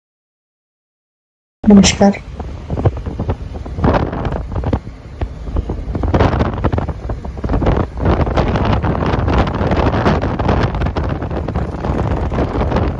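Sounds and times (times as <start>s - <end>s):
wind buffeting microphone: 1.7s - 12.9s
vehicle running noise: 2.2s - 12.9s.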